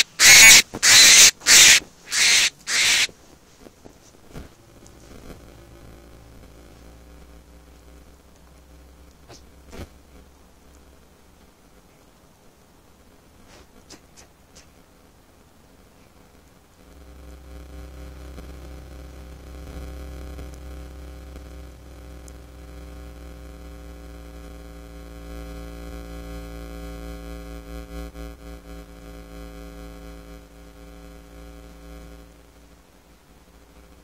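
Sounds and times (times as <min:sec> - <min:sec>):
low drone: 0:00.0 - 0:03.1
electrical hum and static: 0:00.0 - 0:34.0.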